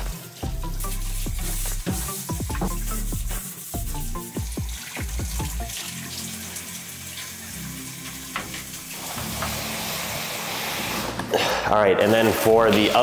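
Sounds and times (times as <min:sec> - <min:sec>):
background music plucked notes: 0:00.0 - 0:13.0
tap running into sink: 0:08.0 - 0:10.3.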